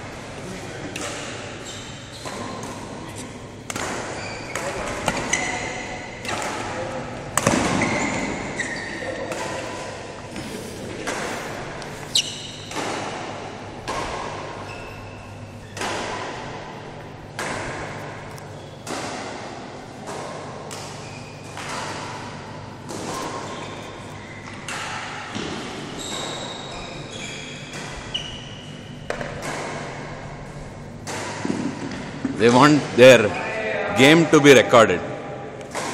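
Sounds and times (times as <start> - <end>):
racquet hitting shuttlecock: 0.8 - 32.4, 35.6 - 35.9
shoes squeaking on court: 1.5 - 3.3, 4.0 - 6.1, 7.7 - 12.8, 14.5 - 15.8, 18.4 - 18.8, 20.9 - 21.6, 23.1 - 24.7, 25.7 - 29.2.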